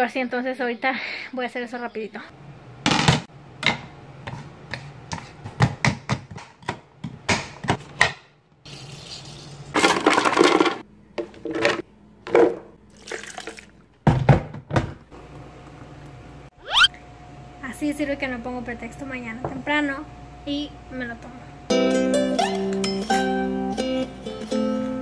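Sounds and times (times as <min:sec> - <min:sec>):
knife chopping on plastic board: 0:03.6 - 0:08.3.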